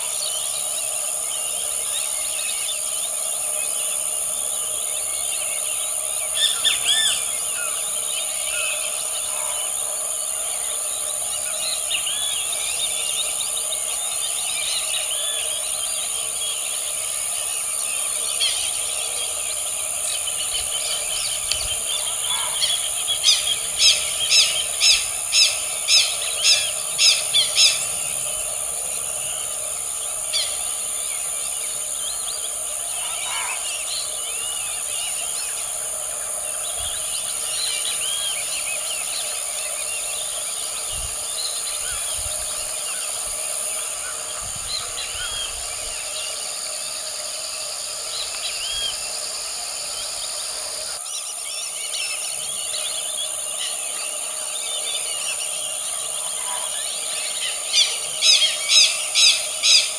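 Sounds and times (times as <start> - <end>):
bird chirps and trills: 0.0 - 59.9
loud sharp bird calls: 6.2 - 10.0, 17.5 - 31.0, 31.6 - 35.6.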